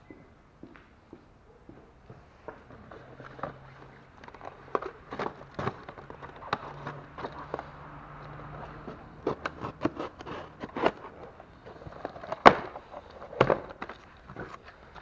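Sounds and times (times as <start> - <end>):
cardboard box crackling and rustling: 3.2 - 15.0.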